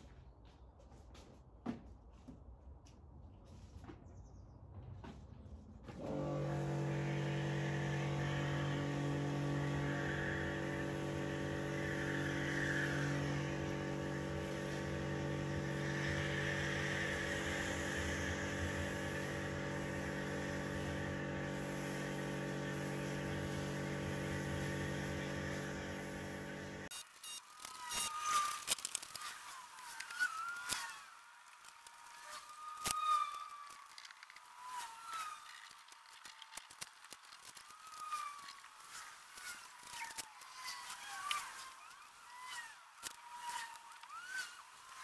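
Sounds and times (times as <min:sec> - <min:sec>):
pressure washer motor hum: 0:06.0 - 0:27.1
spray jet hissing: 0:06.1 - 0:26.9.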